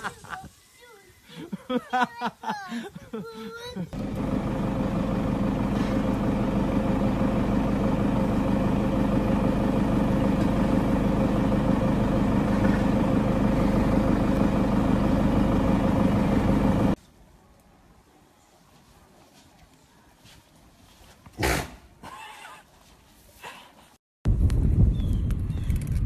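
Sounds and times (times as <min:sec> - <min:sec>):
vehicle engine idling: 0:04.0 - 0:17.0.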